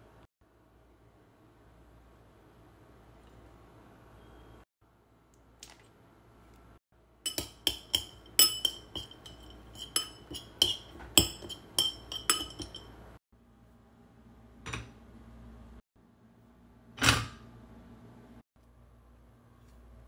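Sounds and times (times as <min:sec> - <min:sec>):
metal spoon clinking ceramic bowl: 0:07.2 - 0:13.1.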